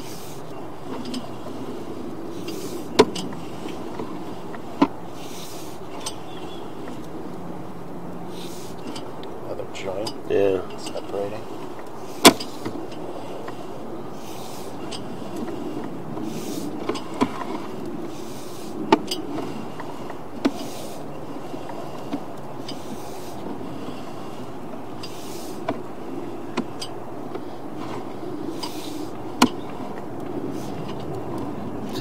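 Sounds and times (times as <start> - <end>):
cable rubbing: 9.8 - 32.0.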